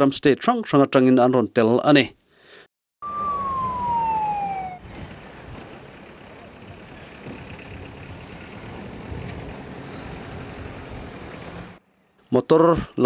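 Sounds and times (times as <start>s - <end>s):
siren-like tone sliding down: 3.0s - 4.9s
jeeps rumbling past: 3.0s - 11.8s.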